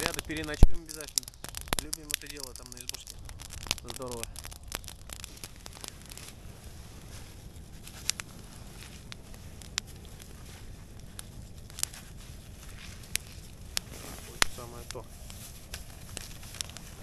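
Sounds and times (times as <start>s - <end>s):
plastic packet crinkling: 0.0s - 6.3s
campfire crackling: 0.0s - 17.0s
fire popping: 0.0s - 17.0s.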